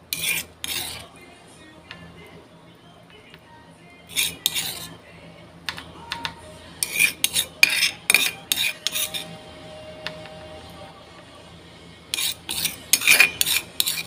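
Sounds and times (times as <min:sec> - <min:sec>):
metal spoon scraping a plate: 0:00.1 - 0:01.1, 0:04.1 - 0:05.0, 0:06.8 - 0:09.3, 0:12.1 - 0:14.0.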